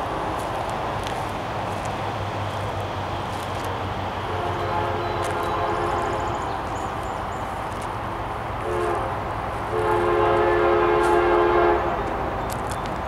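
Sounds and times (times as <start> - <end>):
low rumble of train: 0.0 - 13.0
locomotive horn chord: 4.2 - 6.7, 8.6 - 12.4.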